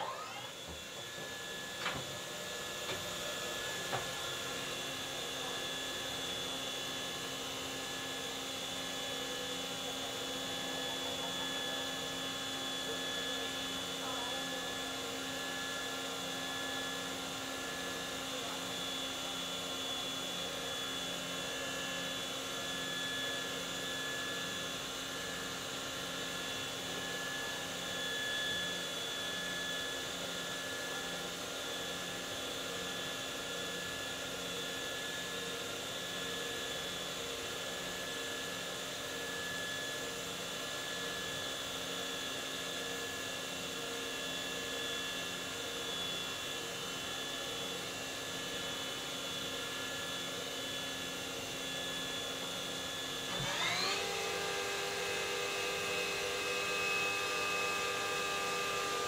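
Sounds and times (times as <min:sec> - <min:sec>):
machining center humming and whining: 0:00.0 - 0:04.4, 0:53.3 - 0:59.0.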